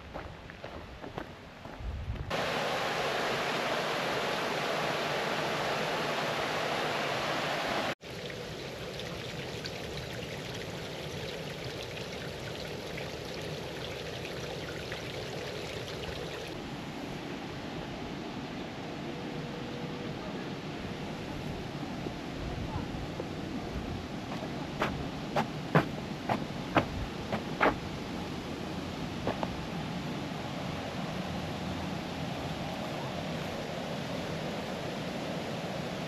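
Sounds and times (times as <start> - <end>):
running water: 2.3 - 16.6.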